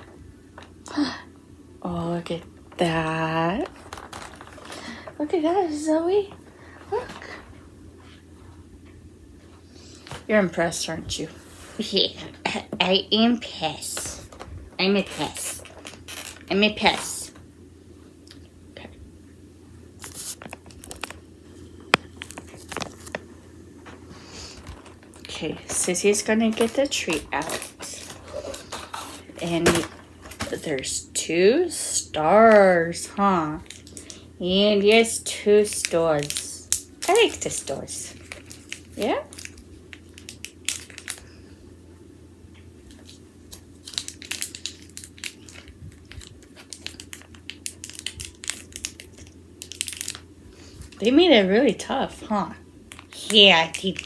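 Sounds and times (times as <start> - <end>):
plastic packaging crinkling: 2.7 - 5.3, 14.0 - 17.2, 20.0 - 23.3, 23.9 - 30.9, 33.5 - 34.2, 35.3 - 41.3, 42.8 - 51.0, 52.9 - 54.0.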